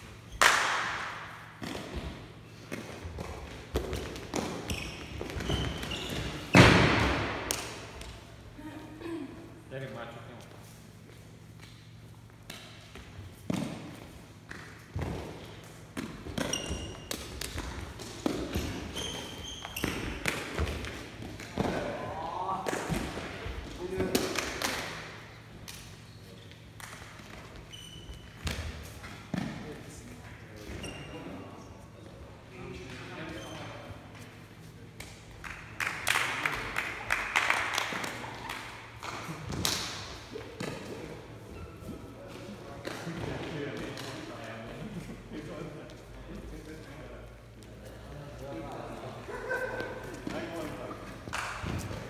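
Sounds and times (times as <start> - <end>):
taps and thuds echoing in a hall: 0.0 - 8.3, 48.6 - 52.0
footfalls on sports hall floor: 0.1 - 8.4, 10.3 - 24.8, 39.0 - 52.0
high shoe squeaks: 4.4 - 6.7, 16.4 - 17.1, 18.4 - 20.3, 27.6 - 28.5, 30.6 - 31.6, 33.2 - 33.9.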